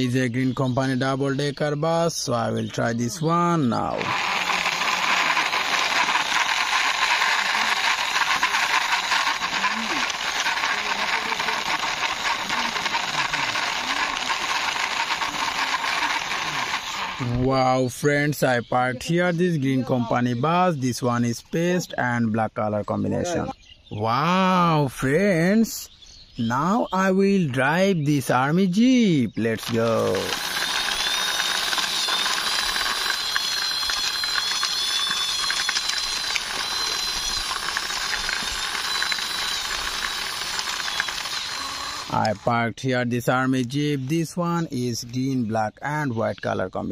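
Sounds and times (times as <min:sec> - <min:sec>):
toy wheels rolling on concrete: 0:03.1 - 0:17.5, 0:29.4 - 0:42.5
rapid fine clicking: 0:03.8 - 0:17.5, 0:29.4 - 0:42.5.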